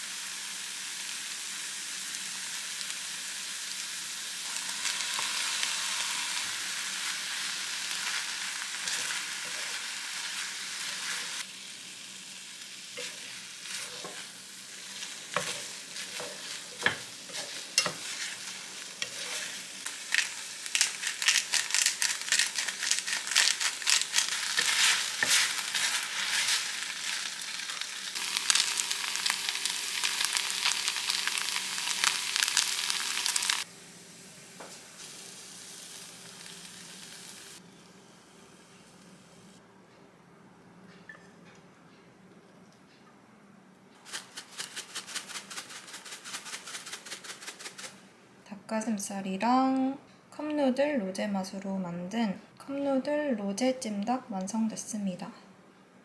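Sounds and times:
food sizzling in a pan: 0.0 - 39.3
chopsticks tapping a pan: 15.3 - 18.4.

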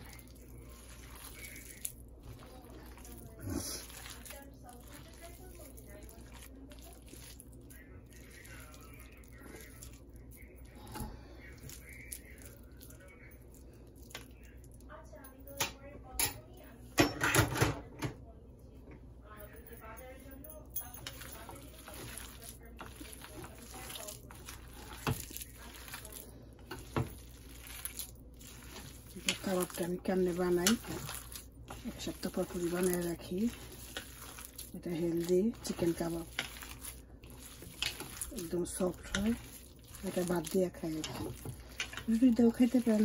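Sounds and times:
wet squishing of kneaded mixture: 0.0 - 16.8, 18.5 - 43.0.

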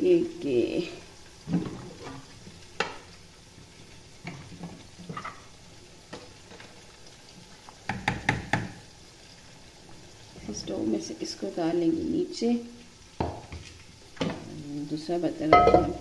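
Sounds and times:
onions sizzling in oil: 0.0 - 16.0
spoon knocking against pot: 7.9 - 8.8, 15.5 - 16.0.

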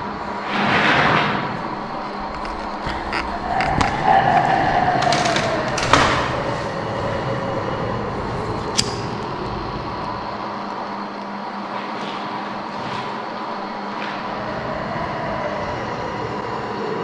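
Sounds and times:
steady rumbling with hum: 0.0 - 17.0
sliding tone: 0.4 - 8.6.

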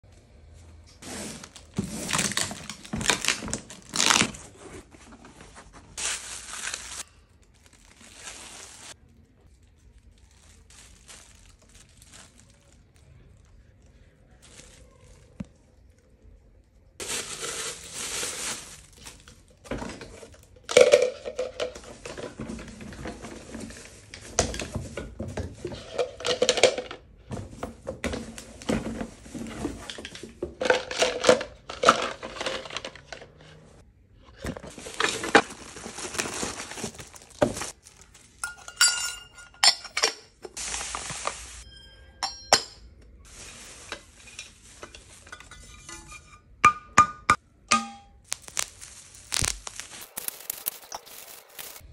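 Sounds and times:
plastic wrap crinkling: 1.1 - 19.7, 34.7 - 38.6, 48.2 - 51.9
kitchen utensils clattering: 38.4 - 40.5, 41.6 - 48.0.

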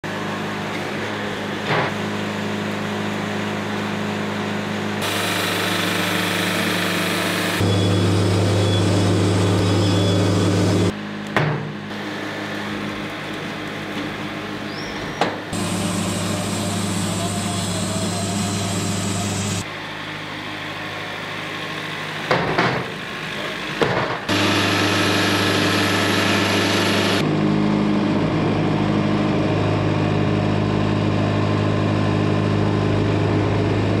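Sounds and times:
band sawmill cutting log: 0.1 - 10.9, 15.4 - 28.0.

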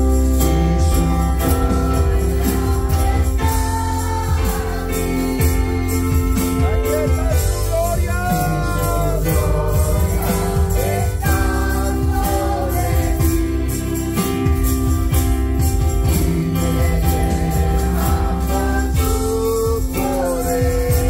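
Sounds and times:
electric keyboard chords: 0.0 - 21.0
steady percussion beat: 0.0 - 21.0.

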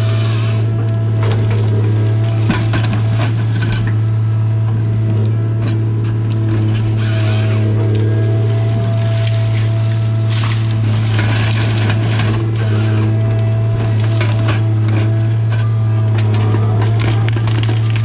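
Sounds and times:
diesel engine droning: 0.0 - 18.0
wood stems cracking and snapping: 7.8 - 18.0.

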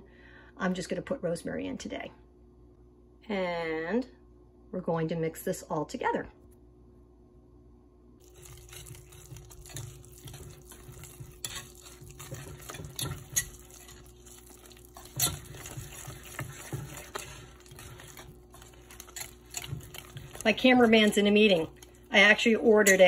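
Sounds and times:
whisk clinking on pan: 8.2 - 22.0
whisk scraping polenta in saucepan: 8.2 - 23.0.

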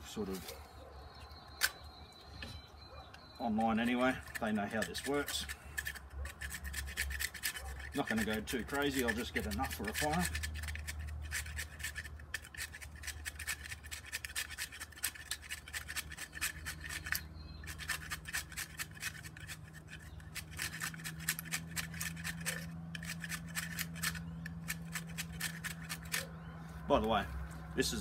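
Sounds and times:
wood grater rasping on wood: 3.6 - 26.3.

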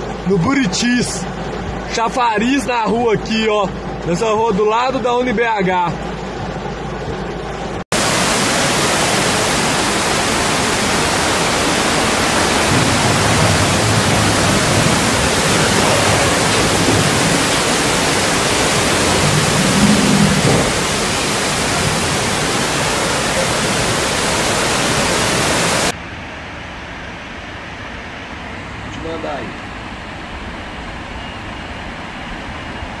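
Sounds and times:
floodwater torrent rushing: 0.0 - 33.0
heavy rain on a car: 5.0 - 26.0.

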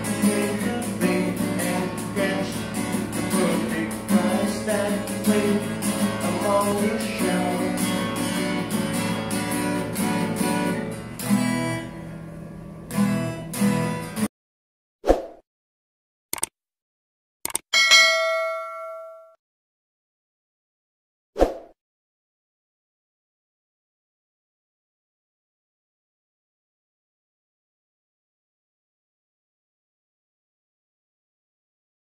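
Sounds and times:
man singing: 0.0 - 8.1
acoustic guitar strumming: 0.0 - 14.3.

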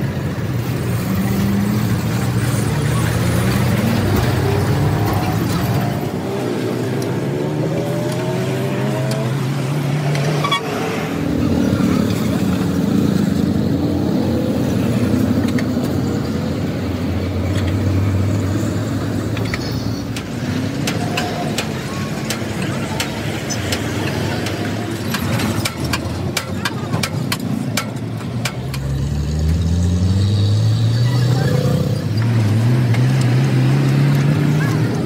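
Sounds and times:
heavy engine hum: 0.0 - 35.0
vehicle engines passing: 0.0 - 35.0.

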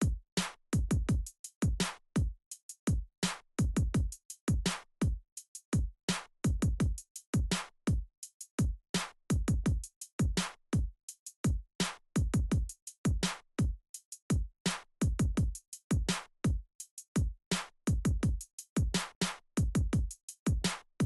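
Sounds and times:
electronic drum-machine beat: 0.8 - 2.3, 3.6 - 5.2, 6.5 - 8.0, 12.2 - 14.4, 15.0 - 16.6, 17.9 - 19.0, 19.6 - 20.7.

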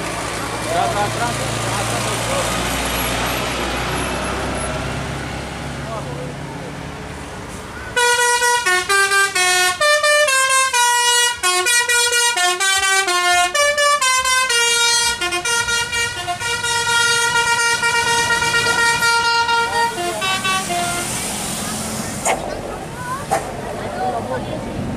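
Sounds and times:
bus air horn playing a tune: 8.0 - 21.3.

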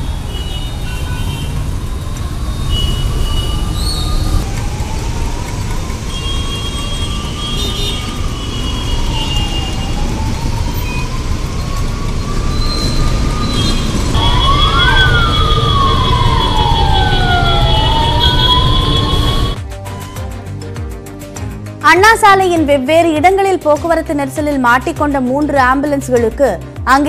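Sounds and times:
heavy traffic rumble: 0.0 - 19.6
ambulance sirens wailing: 0.0 - 20.3.

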